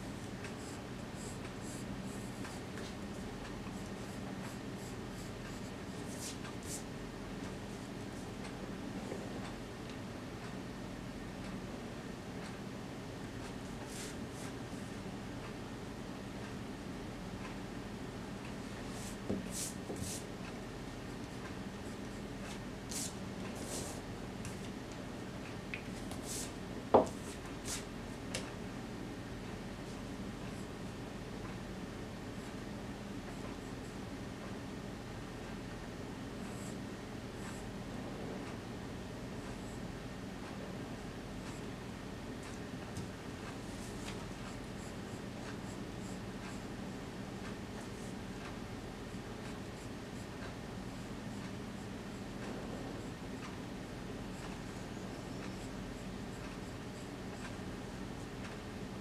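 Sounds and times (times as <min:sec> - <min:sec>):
steady low hum: 0:00.0 - 0:59.0
pencil scratching on paper: 0:00.4 - 0:03.0, 0:03.8 - 0:06.9, 0:18.9 - 0:20.3, 0:22.0 - 0:24.0
eraser knocking on wooden desk: 0:26.9 - 0:27.2.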